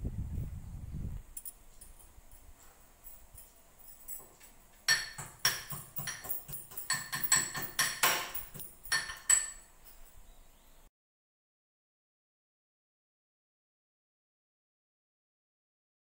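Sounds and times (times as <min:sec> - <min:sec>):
steel utensils clinking: 0:01.4 - 0:10.2.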